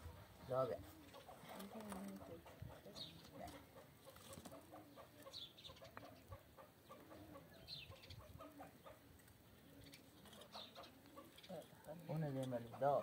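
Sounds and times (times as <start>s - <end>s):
chicken clucking: 2.2s - 9.2s, 10.2s - 11.6s.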